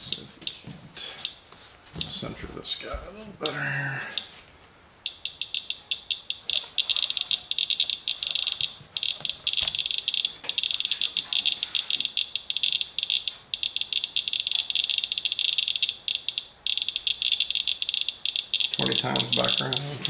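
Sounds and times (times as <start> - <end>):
geiger counter clicking rapidly: 5.1 - 20.0.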